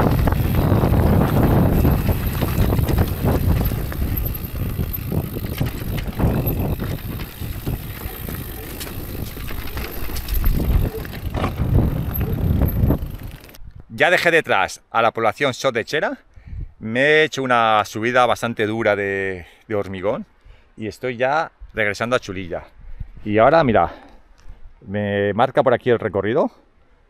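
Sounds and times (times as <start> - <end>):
bike rattling over bumps: 0.0 - 13.6
tyres crunching over gravel: 0.0 - 13.6
wind noise on microphone: 0.0 - 14.0, 16.4 - 16.9, 22.7 - 23.8.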